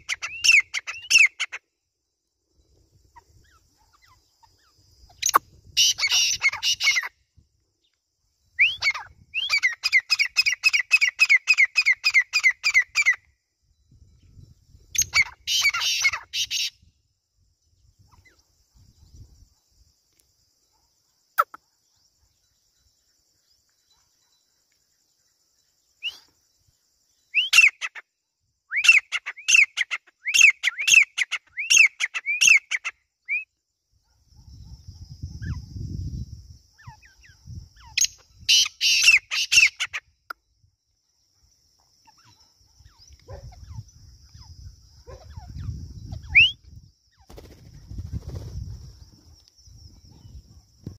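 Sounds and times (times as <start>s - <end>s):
harsh rasping bird calls: 0.0s - 1.6s, 3.2s - 7.2s, 15.0s - 16.8s, 36.8s - 40.1s
bird calling shrill notes: 4.1s - 7.1s, 27.3s - 28.0s, 37.8s - 40.0s.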